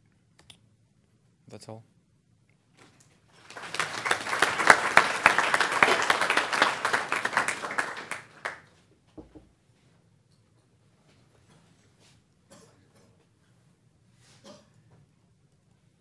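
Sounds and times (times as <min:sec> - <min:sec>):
audience applauding: 0:03.4 - 0:08.7.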